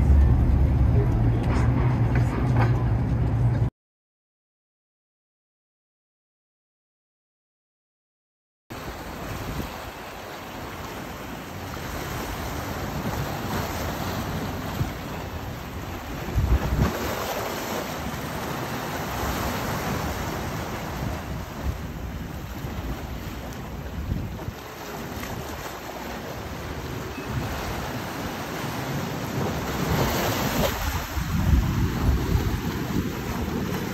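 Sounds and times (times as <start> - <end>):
sea water rushing: 8.7 - 33.9
wind buffeting microphone: 11.7 - 33.9.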